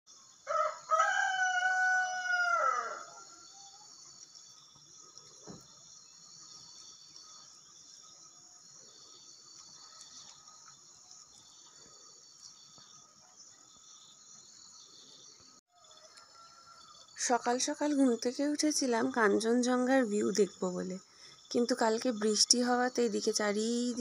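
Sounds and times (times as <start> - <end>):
insects chirring: 0.1 - 24.0
rooster crowing: 0.4 - 3.8, 15.7 - 17.0
faint thump: 5.4 - 5.8.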